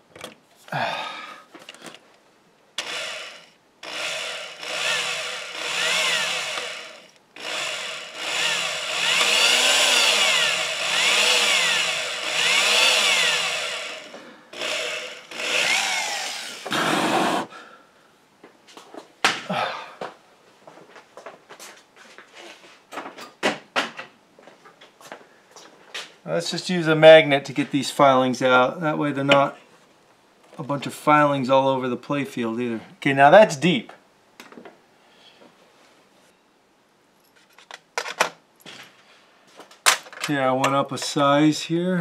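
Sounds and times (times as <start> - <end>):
power drill drilling into wood: 2.8 - 17.5.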